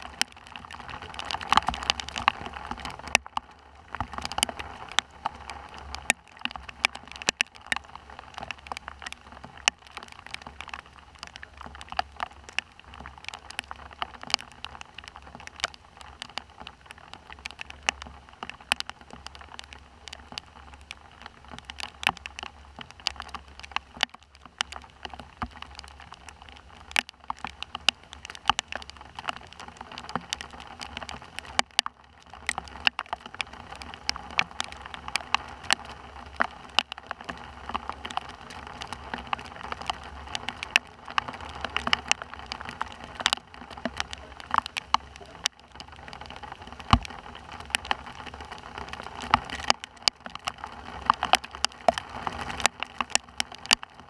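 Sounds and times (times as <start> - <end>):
rain falling: 0.0 - 54.0
sharp taps of raindrops: 0.0 - 54.0.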